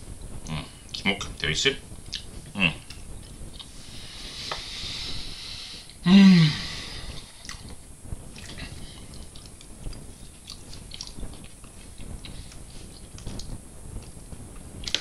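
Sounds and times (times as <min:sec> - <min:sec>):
quiet chewing and mouth sounds: 0:02.0 - 0:04.8, 0:07.0 - 0:15.0.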